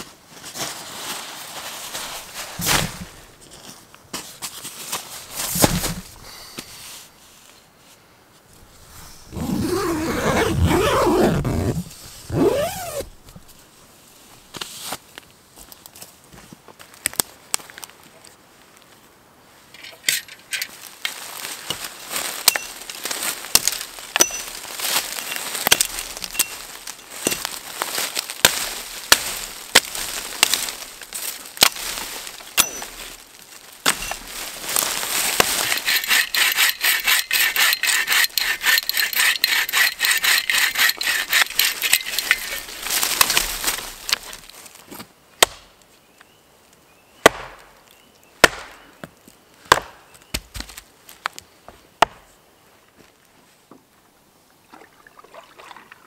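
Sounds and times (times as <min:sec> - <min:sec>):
hand saw rasping through log: 0:35.4 - 0:42.8.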